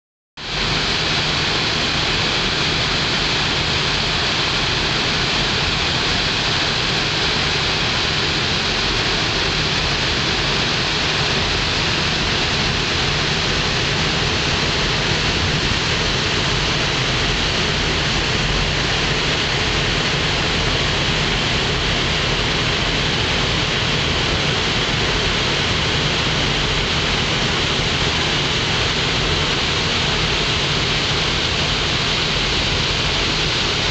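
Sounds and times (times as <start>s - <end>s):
rushing propeller wash: 0.4s - 33.9s
low ship engine hum: 0.5s - 33.9s.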